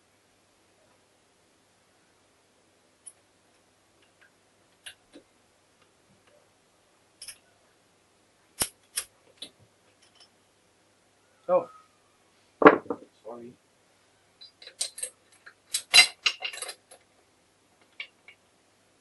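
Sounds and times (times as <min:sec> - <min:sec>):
metal clicks and knocks of gears: 0:14.4 - 0:17.1.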